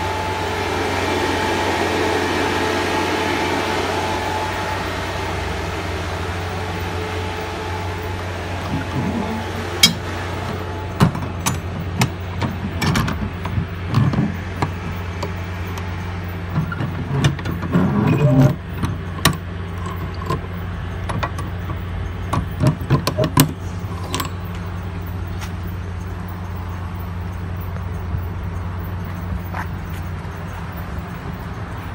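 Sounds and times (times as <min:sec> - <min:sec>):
low motor hum: 0:00.0 - 0:31.9.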